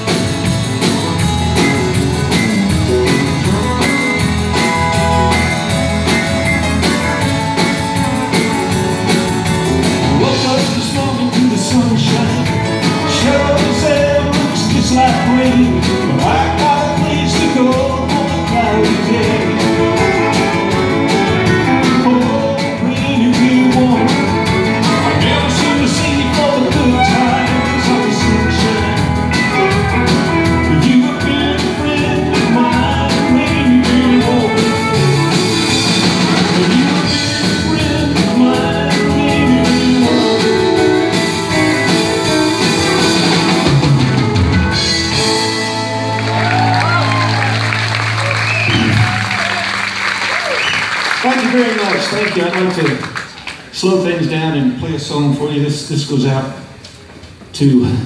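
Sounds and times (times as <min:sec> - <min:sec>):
live country band playing: 0:00.0 - 0:58.0
man singing: 0:10.0 - 0:35.3, 0:36.2 - 0:41.2.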